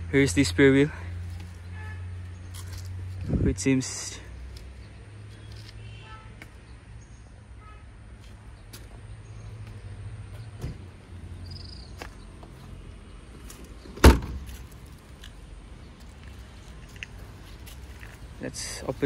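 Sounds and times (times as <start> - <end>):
car boot lid slamming: 14.0 - 14.4.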